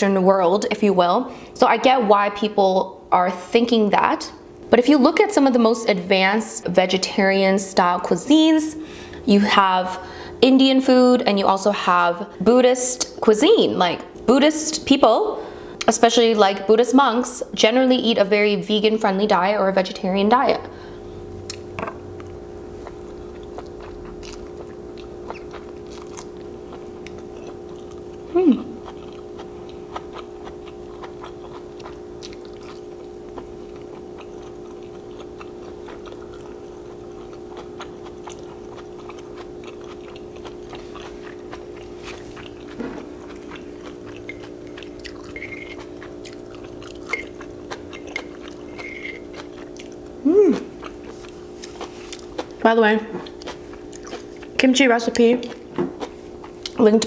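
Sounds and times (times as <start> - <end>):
steady background hum: 0.0 - 57.0
chewing noodles close-up: 21.4 - 52.6, 53.2 - 54.6, 55.4 - 56.8
mouth sounds with falling pitch: 50.2 - 50.7.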